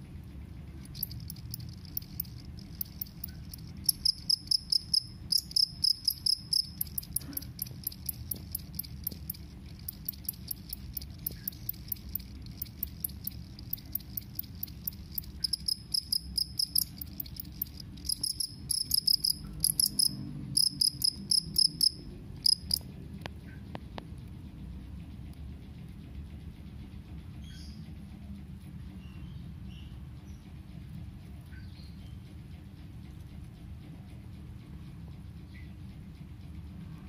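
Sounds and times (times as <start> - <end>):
cricket shrill pulsed chirping: 0.8 - 22.8.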